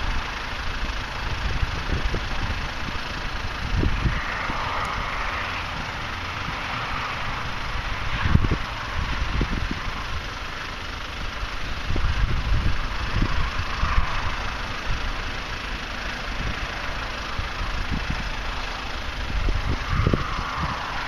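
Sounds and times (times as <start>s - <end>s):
wind gusting across microphone: 0.8s - 16.8s, 17.4s - 21.0s.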